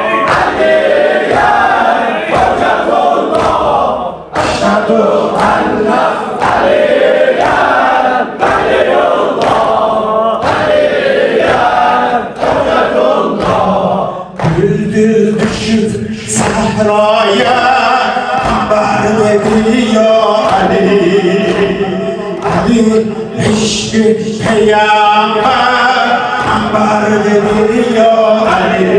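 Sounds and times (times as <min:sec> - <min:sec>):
men chanting in unison: 0:00.0 - 0:28.9
sharp rhythmic beat: 0:00.0 - 0:28.9.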